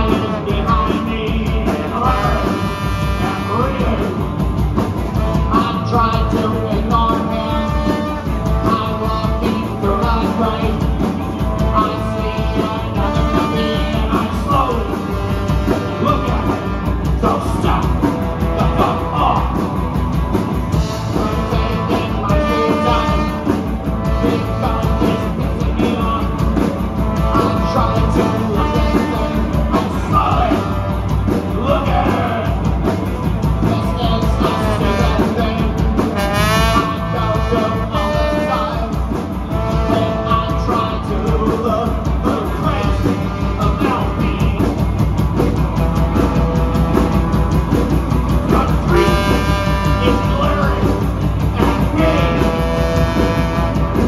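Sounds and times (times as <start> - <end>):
drum kit: 0.0 - 54.0
electric guitars: 0.0 - 54.0
trombone held notes and slides: 1.8 - 4.2, 21.2 - 26.0, 33.9 - 41.2, 48.6 - 54.0.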